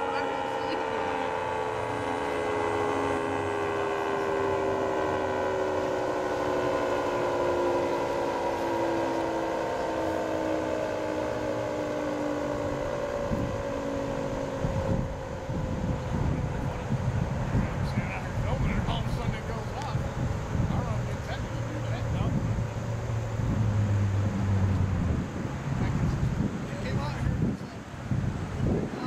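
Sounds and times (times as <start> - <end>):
dual-tone siren winding down: 0.0 - 26.4
low rumbling noise: 0.0 - 29.0.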